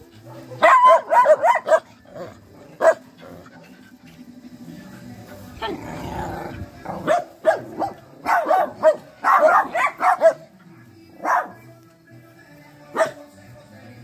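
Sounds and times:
dogs barking: 0:00.1 - 0:04.2, 0:06.9 - 0:10.6, 0:11.2 - 0:11.7, 0:12.9 - 0:13.3.

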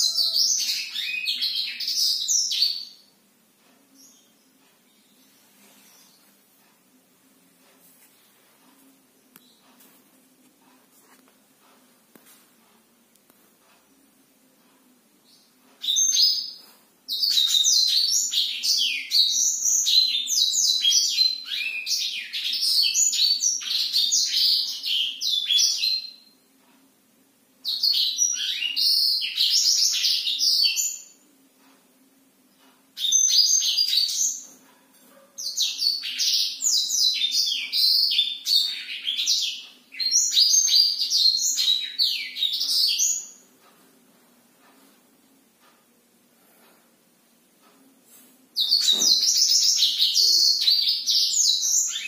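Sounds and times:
bird twittering song: 0:00.0 - 0:03.1, 0:15.2 - 0:26.4, 0:27.6 - 0:31.2, 0:32.9 - 0:43.4, 0:48.6 - 0:52.0.

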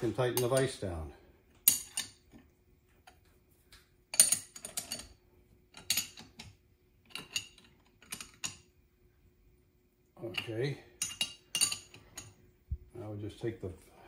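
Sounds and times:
faint steady hum: 0:00.0 - 0:14.0
wrench clinking on metal nuts: 0:01.6 - 0:02.2, 0:04.1 - 0:05.1, 0:05.8 - 0:06.5, 0:07.1 - 0:08.6, 0:10.2 - 0:12.4.

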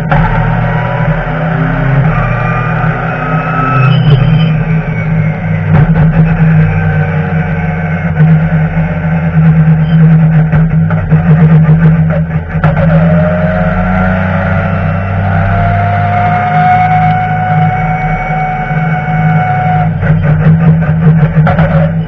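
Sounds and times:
race car engine drone: 0:00.0 - 0:22.0
rising whine: 0:00.0 - 0:22.0
sharp knocks: 0:05.7 - 0:06.9.

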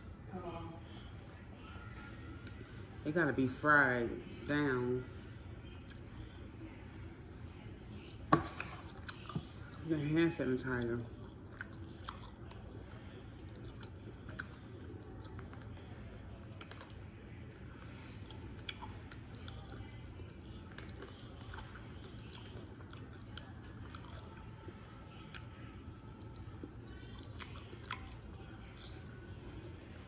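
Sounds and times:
steady low hum: 0:00.0 - 0:30.0
person chewing: 0:11.0 - 0:17.0, 0:17.7 - 0:28.8.

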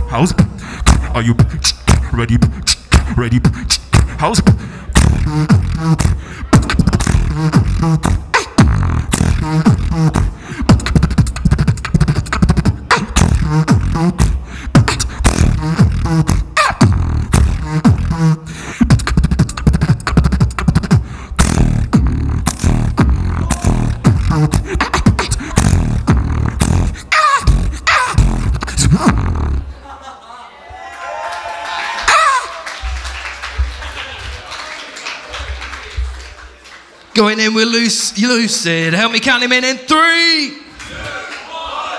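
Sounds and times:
person beatboxing: 0:00.0 - 0:29.7.

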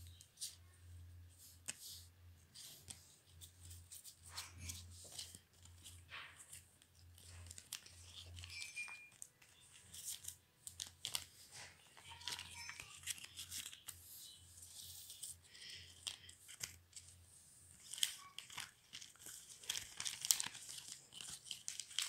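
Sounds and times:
plastic sleeve pages crinkling: 0:02.6 - 0:17.1, 0:17.7 - 0:22.0
cards clicking and rustling: 0:02.9 - 0:14.0, 0:17.8 - 0:22.0.

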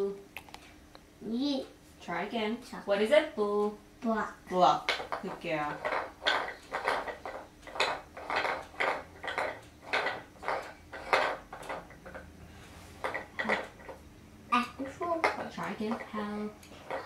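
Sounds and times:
wooden toy rings clacking: 0:04.8 - 0:12.4, 0:13.0 - 0:17.0.

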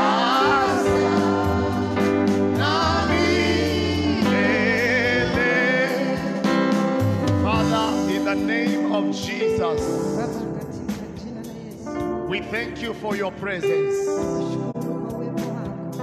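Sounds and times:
instrumental backing with bass: 0:00.0 - 0:16.0.

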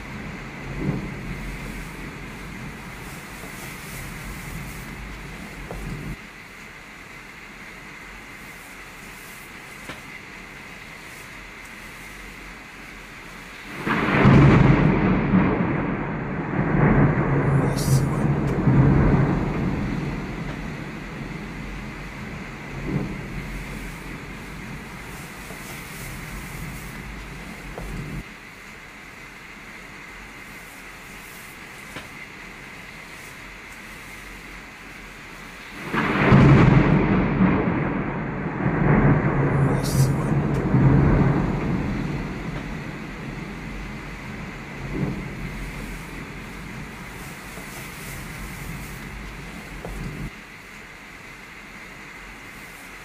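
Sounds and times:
thunder rumbling: 0:00.0 - 0:06.2, 0:09.8 - 0:28.3, 0:32.1 - 0:50.4
heavy rain: 0:00.0 - 0:53.0.

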